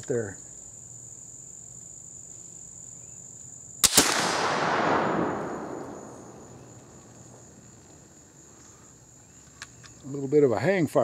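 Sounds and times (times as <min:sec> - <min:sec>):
crickets chirping: 0:00.0 - 0:11.0
rifle cap snap: 0:03.8 - 0:07.1
rifle shot: 0:03.8 - 0:07.6.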